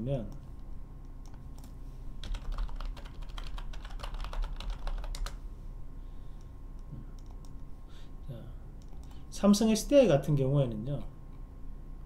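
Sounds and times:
computer keyboard typing: 1.2s - 5.4s, 7.2s - 7.6s, 8.8s - 9.2s.

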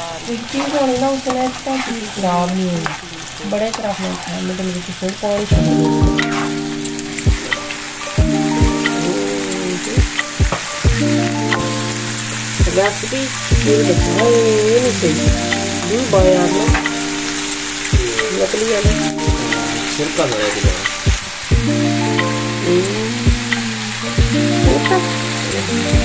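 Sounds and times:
food sizzling in frying pan: 0.0s - 26.0s
spatula stirring in pan: 0.5s - 4.2s
background music with beat: 5.5s - 26.0s.

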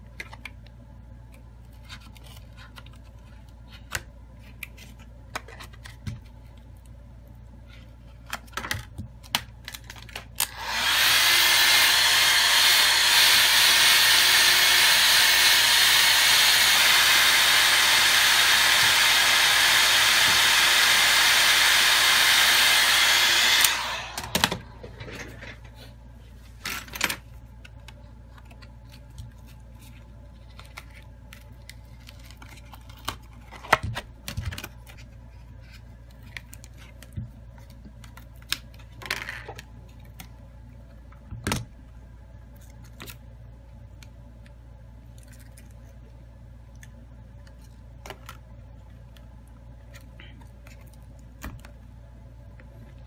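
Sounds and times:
hot-air blower running: 10.4s - 26.0s.

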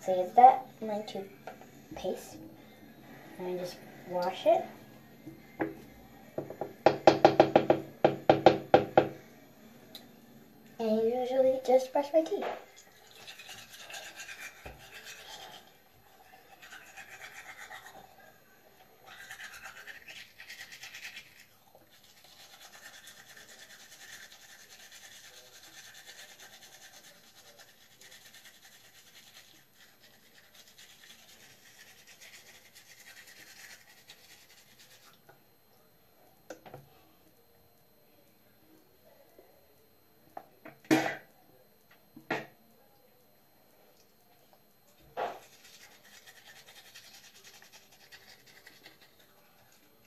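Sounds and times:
toothbrush scrubbing teeth: 11.6s - 35.4s, 45.3s - 50.0s.

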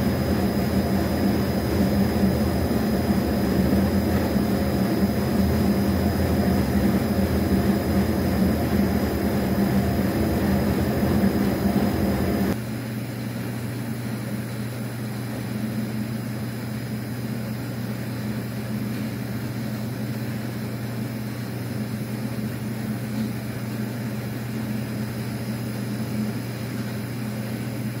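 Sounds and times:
screw conveyor motor humming: 0.0s - 12.6s.

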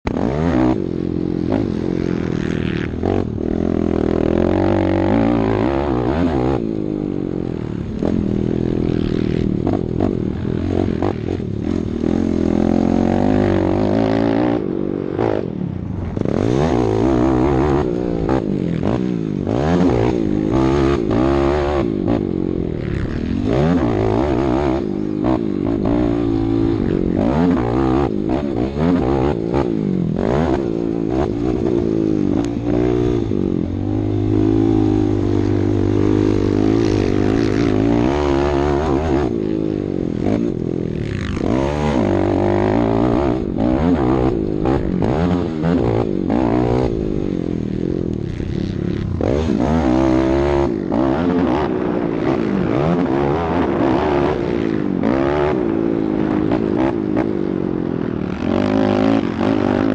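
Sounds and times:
quad engine revving hard: 2.5s - 6.6s, 16.2s - 39.4s, 40.0s - 47.2s, 48.4s - 57.3s.

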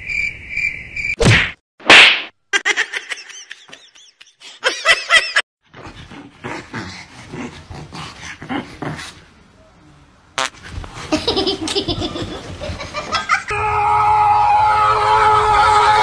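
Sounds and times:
small dog growling: 5.8s - 9.2s.

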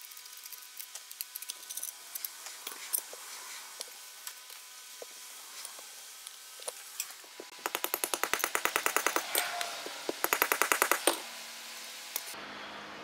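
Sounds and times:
ratchet wrench clicking: 7.6s - 9.3s, 10.2s - 11.2s.

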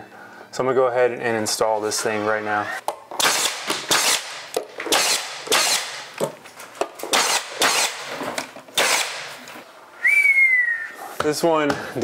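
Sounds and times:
nail gun firing: 3.2s - 6.2s, 7.0s - 8.2s, 8.8s - 9.4s.

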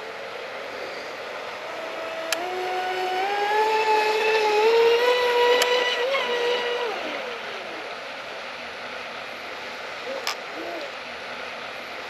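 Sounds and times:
electric motor whining: 0.8s - 8.0s.

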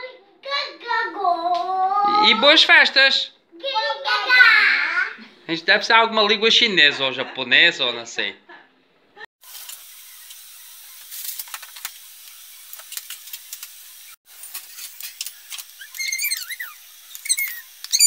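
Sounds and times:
high squeaky chirps: 14.6s - 18.0s.

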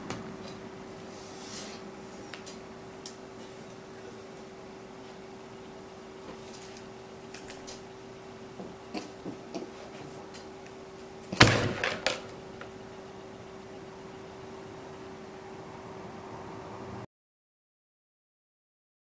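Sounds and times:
faint steady hum: 0.0s - 17.1s
loud thump on desk: 11.4s - 12.2s.

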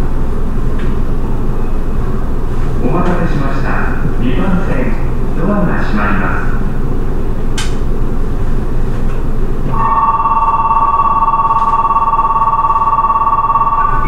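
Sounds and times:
stopped train rumble: 0.0s - 14.0s
electronic chime melody: 9.7s - 14.0s.

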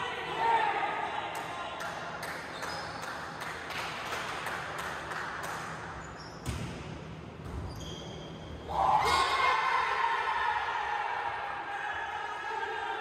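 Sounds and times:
shoe squeaks: 2.5s - 3.1s, 6.0s - 6.6s, 7.5s - 8.7s.

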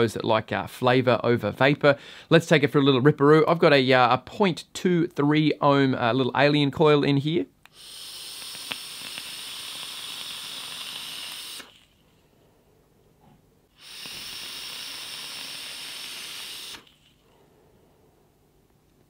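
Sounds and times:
vape draw hissing: 7.7s - 12.0s, 13.7s - 17.2s.

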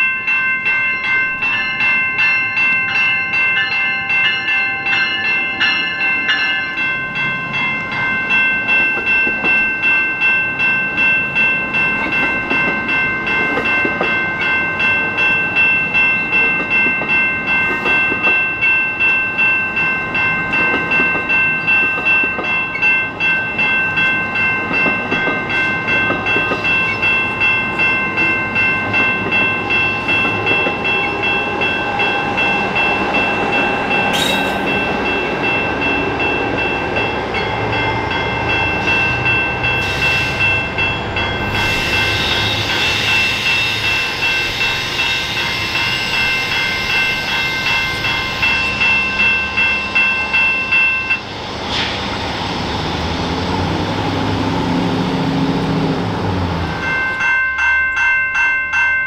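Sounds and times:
bell ringing steadily: 0.0s - 51.3s, 56.7s - 59.0s
train rumble: 0.0s - 57.4s
sharp metal clank: 34.1s - 34.7s.

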